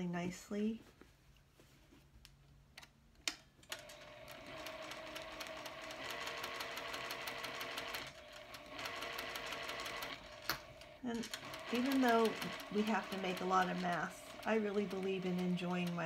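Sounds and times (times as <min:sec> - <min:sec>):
sewing machine clicks: 0:03.3 - 0:16.0
sewing machine stitching: 0:03.7 - 0:16.0.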